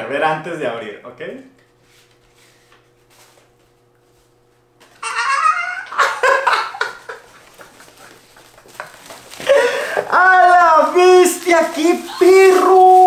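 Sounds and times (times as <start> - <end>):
faint steady hum: 0.0 - 13.0
man squealing and laughing: 4.9 - 8.0, 12.0 - 13.0.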